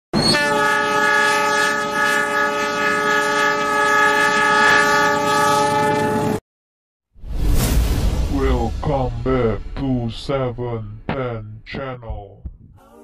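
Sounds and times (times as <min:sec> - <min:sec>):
train horn blast: 0:00.2 - 0:06.4.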